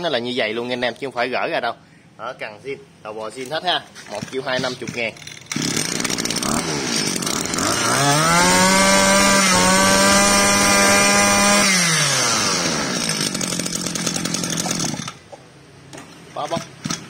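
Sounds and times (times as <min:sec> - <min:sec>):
brush cutter engine revving: 0:04.1 - 0:15.3, 0:16.5 - 0:17.0.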